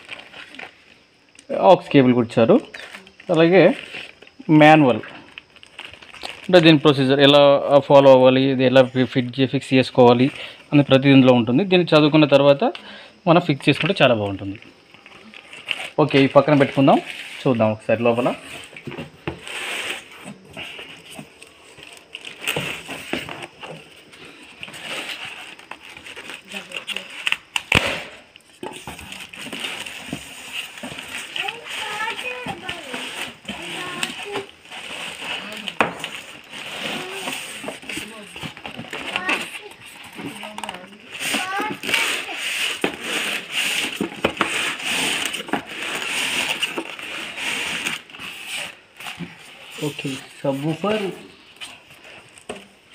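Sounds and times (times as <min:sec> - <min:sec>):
cardboard and plastic rustling: 0:00.0 - 0:01.2, 0:02.7 - 0:07.4, 0:13.5 - 0:52.9
sharp cracks and knocks: 0:27.2 - 0:31.4.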